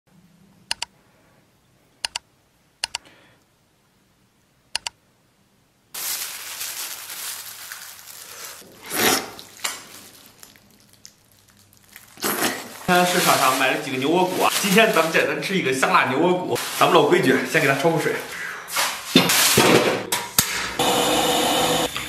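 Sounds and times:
double mouse clicks: 0.7s - 0.9s, 2.0s - 2.2s, 2.8s - 3.0s, 4.7s - 5.0s
wet crinkling and squelching: 6.0s - 15.6s.

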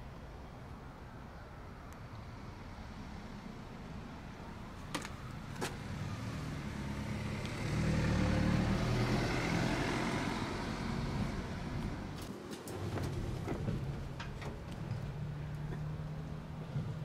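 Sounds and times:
vehicle engine rumble: 0.0s - 17.0s.

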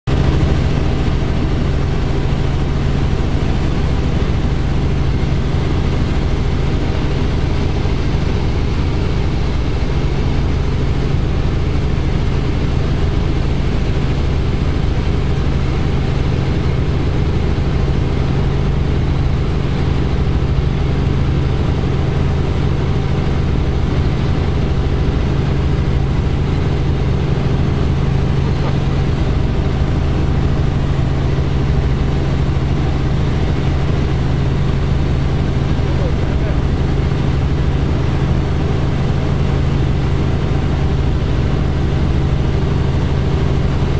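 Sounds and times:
constant rushing noise: 0.1s - 43.9s
helicopter engine and rotors drone: 0.1s - 43.9s.

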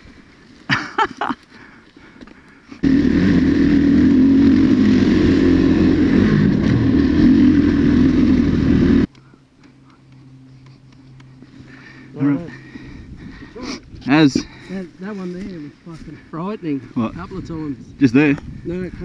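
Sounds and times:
dirt bike engine running: 2.8s - 9.2s
rushing wind: 12.1s - 15.1s, 15.7s - 19.0s.

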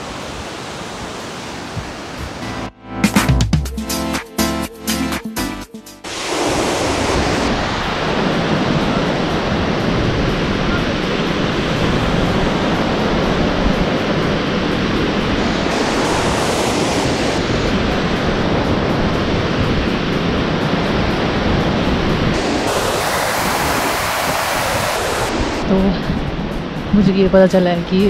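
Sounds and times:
river rushing over boulders: 0.0s - 2.5s, 6.1s - 25.6s.

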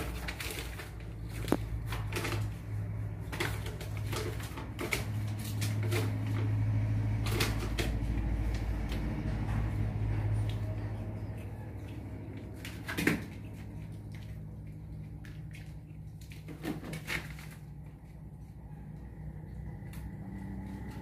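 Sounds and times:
knocks and rustles: 0.0s - 11.1s, 11.7s - 14.5s, 15.2s - 18.0s.

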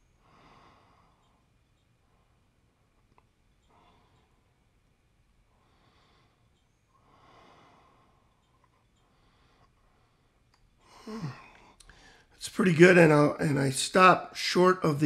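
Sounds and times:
faint breathing: 0.0s - 2.8s, 3.6s - 4.8s, 5.4s - 12.4s.

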